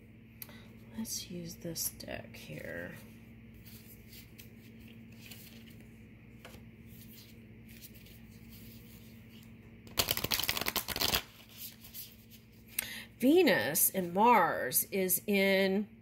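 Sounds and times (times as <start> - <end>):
faint steady hum: 0.0 - 16.0
cards being shuffled: 3.6 - 12.7.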